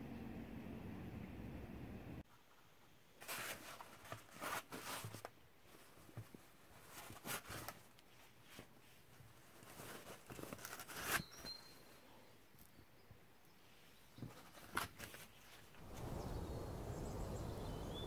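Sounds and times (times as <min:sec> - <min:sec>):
plastic mailer and envelope crinkling: 0:09.4 - 0:11.7.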